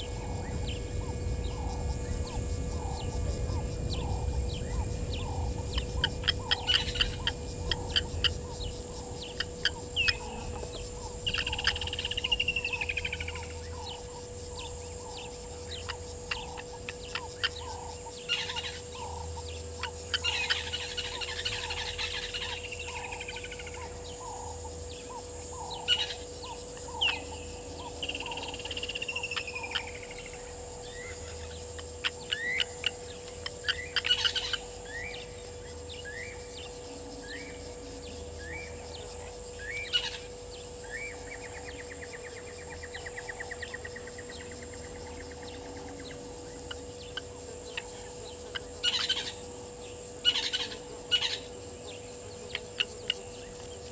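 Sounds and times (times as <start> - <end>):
birds clicking and whistling: 0.0 - 24.4
high insect buzz: 0.0 - 53.9.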